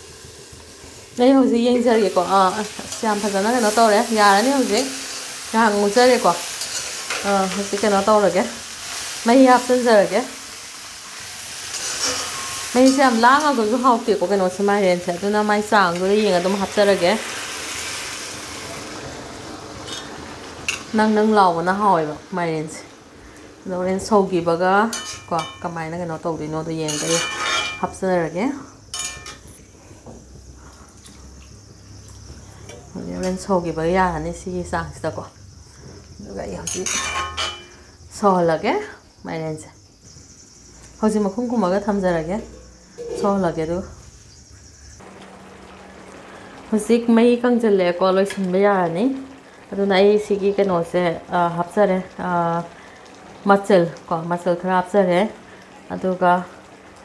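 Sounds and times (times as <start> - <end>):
food sizzling: 0.0 - 57.0
woman's voice: 1.2 - 5.0, 7.2 - 8.6, 9.2 - 10.4, 12.7 - 17.2, 20.9 - 22.9, 23.6 - 27.2, 27.8 - 28.7, 38.2 - 39.8, 41.0 - 44.0, 53.4 - 56.5
metal spatula scraping a pan: 6.5 - 7.8, 11.6 - 13.8, 26.9 - 27.9, 36.6 - 37.8.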